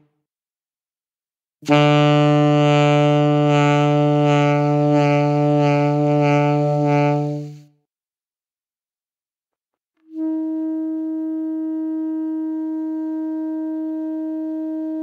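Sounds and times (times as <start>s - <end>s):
saxophone long low note: 1.6s - 7.7s, 10.0s - 15.0s.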